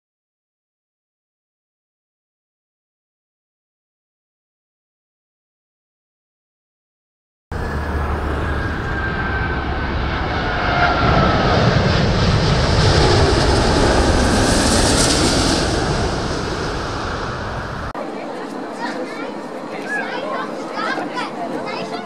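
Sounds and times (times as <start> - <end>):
whining tones gliding down: 7.5 - 17.9
jet airliner passing overhead: 7.5 - 18.6.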